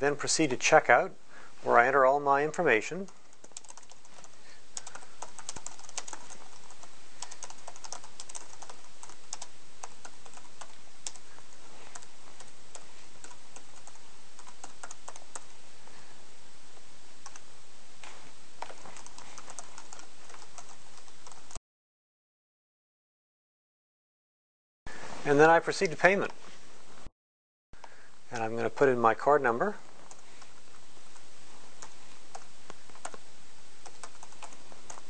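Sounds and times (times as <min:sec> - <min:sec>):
faint steady hiss: 0:00.0 - 0:21.6, 0:24.9 - 0:27.1, 0:27.8 - 0:35.0
typing on laptop keyboard: 0:03.1 - 0:11.2, 0:11.9 - 0:15.5, 0:19.0 - 0:21.6, 0:33.8 - 0:35.0.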